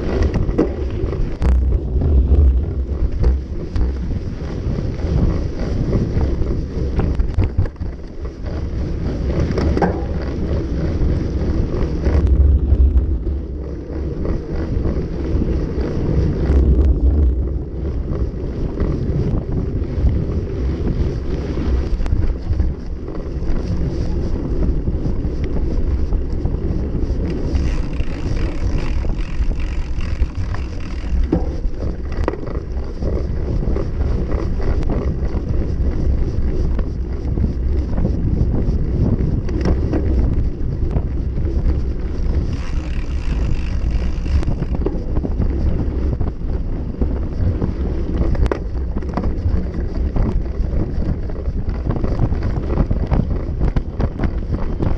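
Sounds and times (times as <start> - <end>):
bike rattles and clicks: 0.0 - 54.9
tyres rumbling on dirt track: 0.0 - 54.9
wind buffeting microphone: 0.0 - 54.9.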